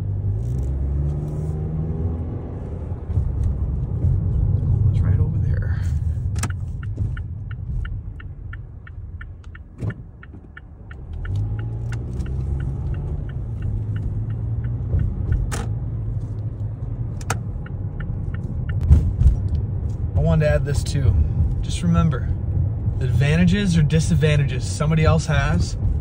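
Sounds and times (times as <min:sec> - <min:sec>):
car engine and road rumble: 0:00.0 - 0:26.0
turn signal ticking: 0:02.2 - 0:26.0.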